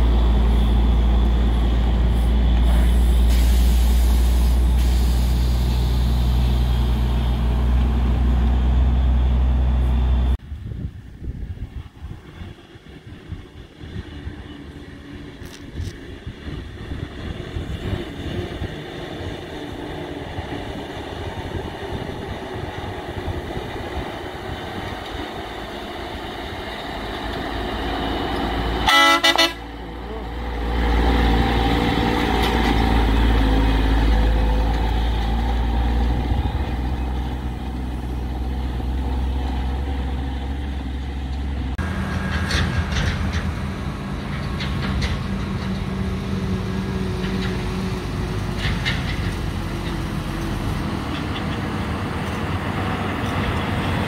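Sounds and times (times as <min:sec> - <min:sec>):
heavy truck engine rumble: 0:00.0 - 0:54.0
truck horn blast: 0:28.8 - 0:29.8.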